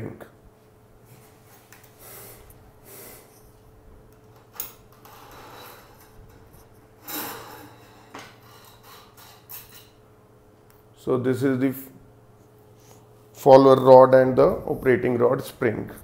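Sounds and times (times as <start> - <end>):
metal scrape: 5.0 - 10.0.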